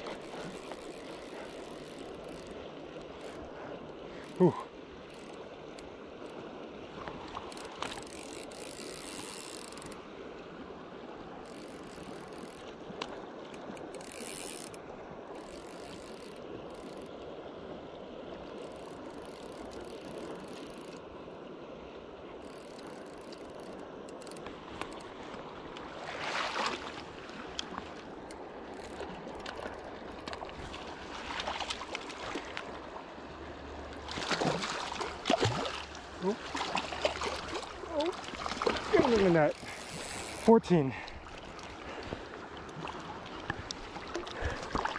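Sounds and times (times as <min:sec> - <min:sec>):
fishing reel drag clicking: 0:00.0 - 0:02.6, 0:07.4 - 0:10.0, 0:11.4 - 0:17.1, 0:18.6 - 0:21.0, 0:22.4 - 0:25.1, 0:27.5 - 0:30.5, 0:39.3 - 0:40.6
river current rushing: 0:00.0 - 0:44.9.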